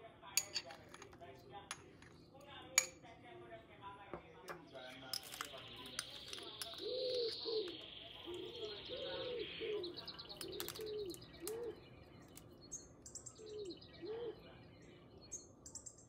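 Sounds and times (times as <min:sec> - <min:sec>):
faint high bird chirps: 0:04.7 - 0:16.0
dove-like cooing: 0:05.9 - 0:11.9, 0:13.4 - 0:14.7.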